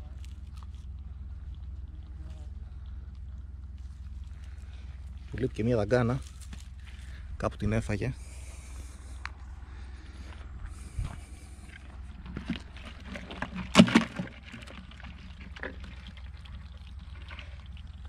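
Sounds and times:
crabs scraping and clicking on plastic: 0:11.7 - 0:18.0.

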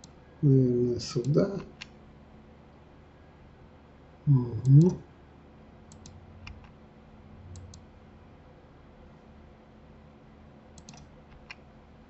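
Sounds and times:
faint room hum: 0:00.0 - 0:12.0
computer mouse and key clicks: 0:05.9 - 0:06.8, 0:07.5 - 0:07.9, 0:10.8 - 0:11.6.

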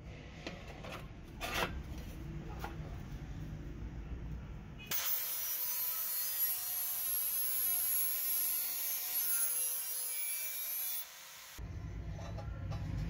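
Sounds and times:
angle grinder grinding steel: 0:04.9 - 0:11.6.

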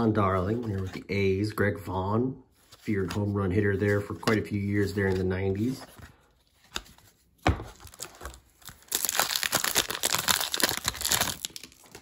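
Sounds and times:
wrapper tearing and crinkling: 0:07.7 - 0:12.0.

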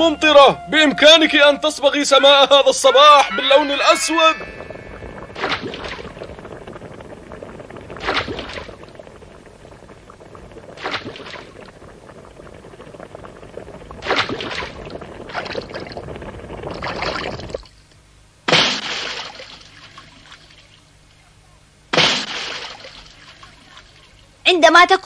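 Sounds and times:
loud splash: 0:03.9 - 0:11.8, 0:13.8 - 0:16.0, 0:16.7 - 0:17.7, 0:18.5 - 0:20.5, 0:21.9 - 0:24.0
cartoon liquid pouring and splashing: 0:04.2 - 0:17.8, 0:18.5 - 0:20.5, 0:21.9 - 0:24.1.

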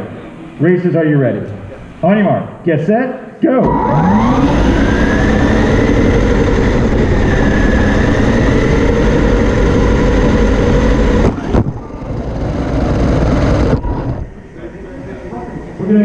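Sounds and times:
rc car motor whining: 0:03.6 - 0:14.2.

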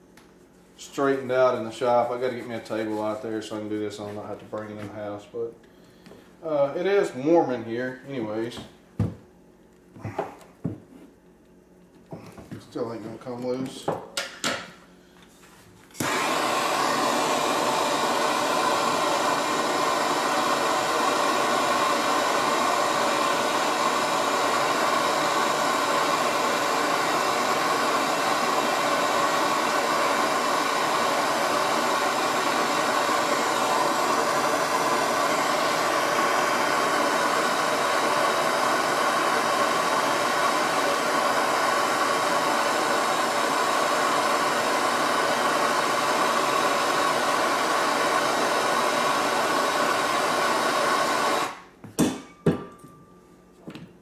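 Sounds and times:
gas torch hissing: 0:00.8 - 0:05.3, 0:16.0 - 0:51.8.

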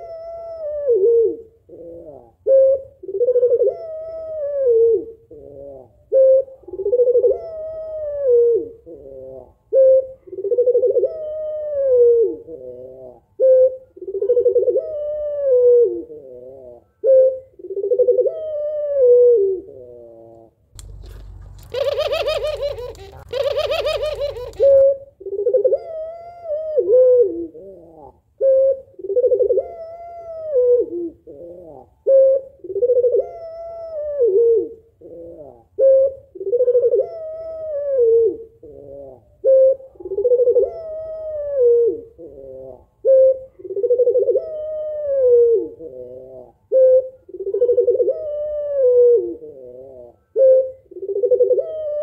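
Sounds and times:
dove cooing: 0:00.0 - 0:52.0
low rumble: 0:20.8 - 0:24.6
rough bird call: 0:20.8 - 0:24.9.

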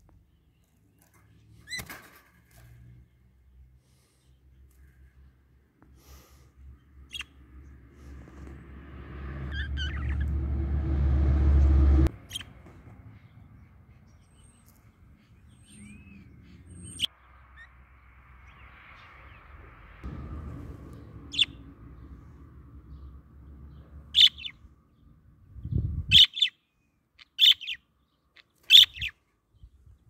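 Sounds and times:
budgerigars chirping: 0:07.1 - 0:07.4, 0:09.5 - 0:10.3, 0:12.3 - 0:12.5, 0:24.1 - 0:24.6, 0:26.1 - 0:26.6, 0:27.2 - 0:27.8, 0:28.4 - 0:29.1
low rumble: 0:07.4 - 0:14.0, 0:18.0 - 0:26.1
thin bird whistles: 0:15.6 - 0:17.7.

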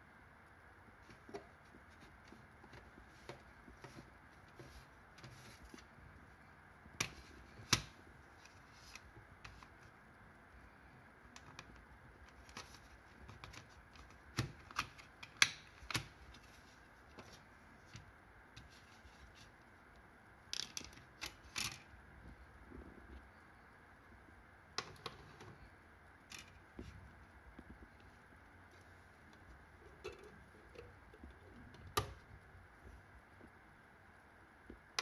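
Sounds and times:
plastic cd case clicking: 0:11.4 - 0:16.4.

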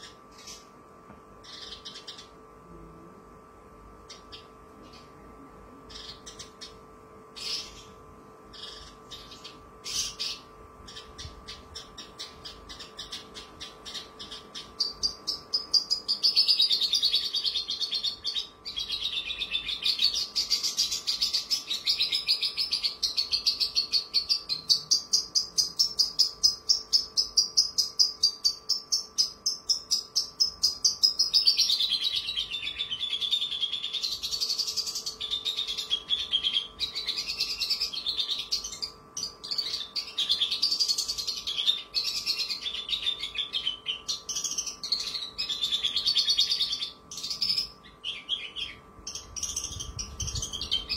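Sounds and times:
lark singing trilled song: 0:01.4 - 0:02.4, 0:05.9 - 0:50.9.

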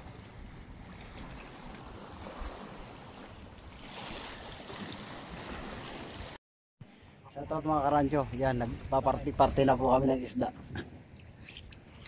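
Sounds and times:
wind rumbling on microphone: 0:07.3 - 0:12.0.

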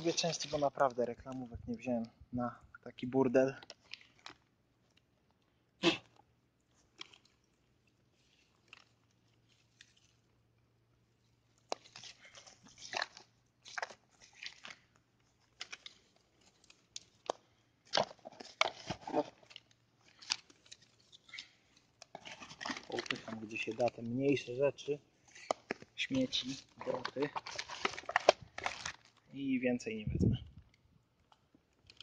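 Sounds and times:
dry grass crunching and rustling: 0:15.5 - 0:24.4.

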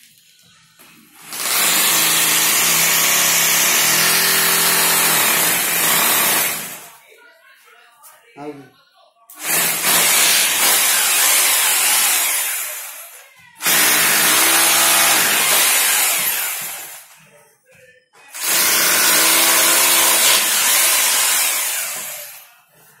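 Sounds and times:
hammer drill boring into wall: 0:01.2 - 0:06.9, 0:09.4 - 0:12.9, 0:13.6 - 0:17.1, 0:18.3 - 0:22.4.

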